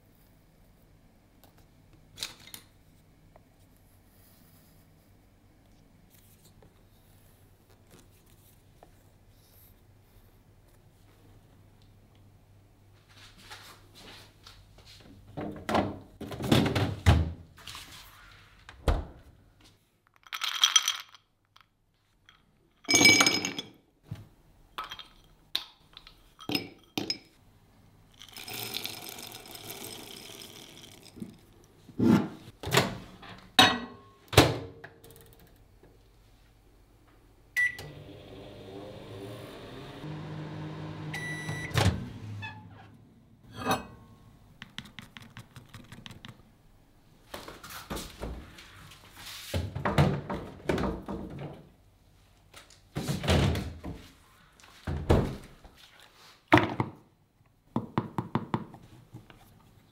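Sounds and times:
kitchen thunks and clinks: 0:22.8 - 0:23.8, 0:32.2 - 0:34.7, 0:43.5 - 0:44.2
microwave oven humming: 0:37.6 - 0:43.5
short beep: 0:41.2 - 0:41.8.

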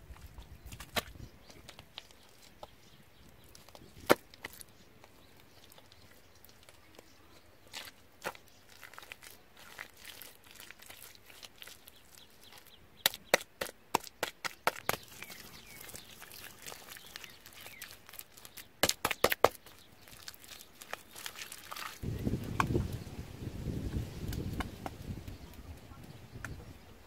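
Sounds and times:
mud scraping and smearing: 0:00.0 - 0:25.3
hands slapping wet mud: 0:12.5 - 0:22.8.

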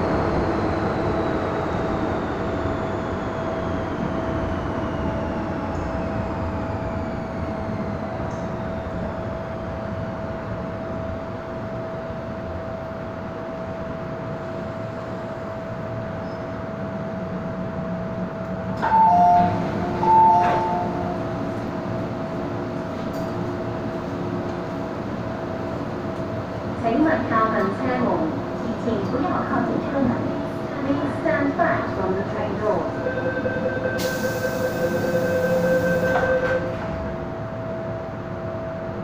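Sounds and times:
train running rumble: 0:00.0 - 0:39.0
train motor whine: 0:33.0 - 0:37.4.

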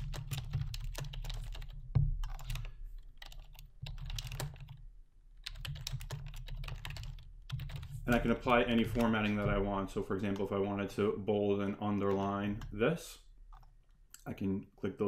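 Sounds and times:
computer keyboard typing: 0:00.0 - 0:04.8, 0:05.4 - 0:09.6, 0:11.9 - 0:12.9, 0:13.5 - 0:14.0.

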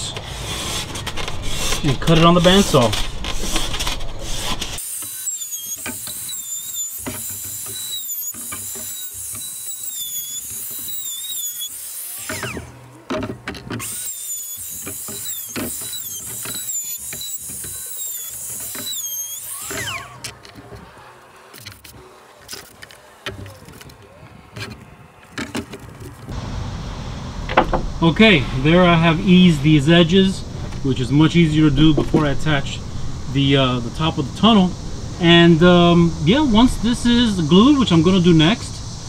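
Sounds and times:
electric router whining: 0:00.0 - 0:26.3.

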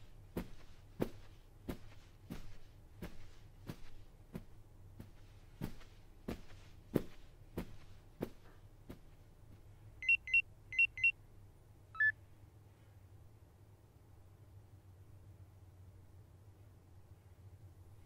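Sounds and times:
footsteps walking: 0:00.0 - 0:09.7
faint low hum: 0:00.0 - 0:18.0.

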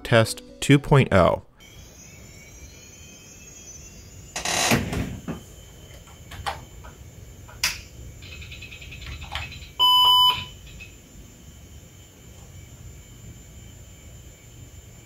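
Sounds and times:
computer fan rushing: 0:01.6 - 0:15.0
short computer beep: 0:09.8 - 0:10.5.

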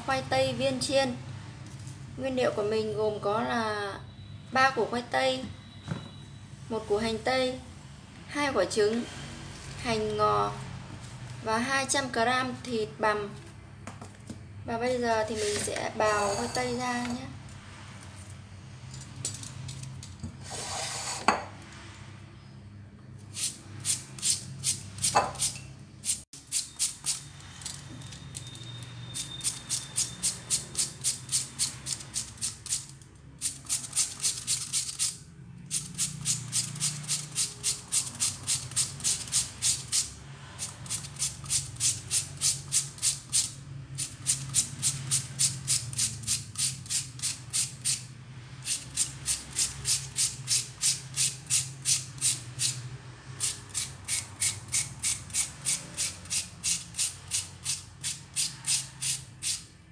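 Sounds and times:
potato rasping on grater: 0:33.4 - 0:48.1, 0:48.7 - 0:52.8, 0:53.4 - 0:59.7.

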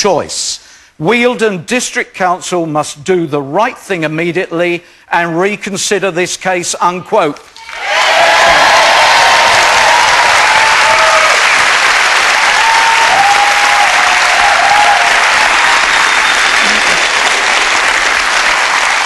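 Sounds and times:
audience applauding: 0:07.6 - 0:19.0.

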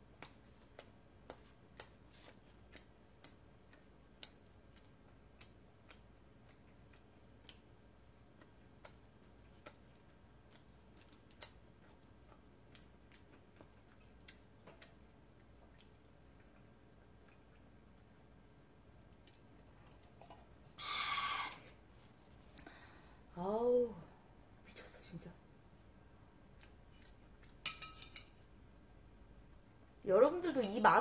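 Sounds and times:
wet chewing mouth clicks: 0:00.0 - 0:07.7, 0:08.3 - 0:17.8, 0:26.5 - 0:27.6.

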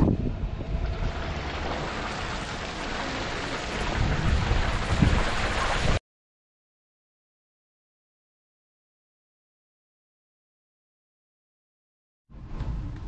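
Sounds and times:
wind buffeting microphone: 0:00.0 - 0:06.0.

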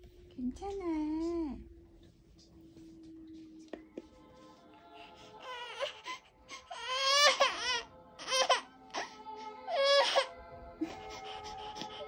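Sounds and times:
lullaby music: 0:00.1 - 0:12.0
toddler crying: 0:05.4 - 0:09.1, 0:09.7 - 0:10.3.

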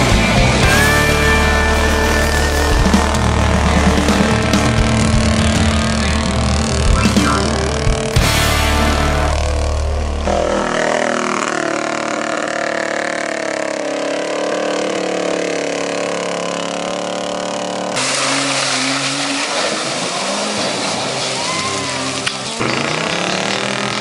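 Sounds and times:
jeep engine revving through mud: 0:00.0 - 0:24.0
pickup engine revving in mud: 0:00.0 - 0:24.0
tyres spinning through mud: 0:15.2 - 0:24.0.

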